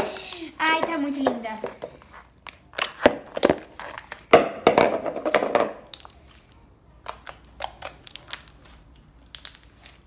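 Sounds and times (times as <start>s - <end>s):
slime squelching and crackling: 5.8s - 10.0s.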